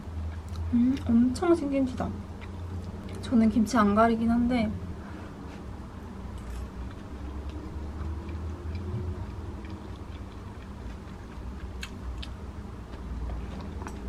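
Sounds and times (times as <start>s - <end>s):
low room hum: 0.0s - 14.0s
faint chewing: 0.2s - 1.2s, 6.3s - 14.0s.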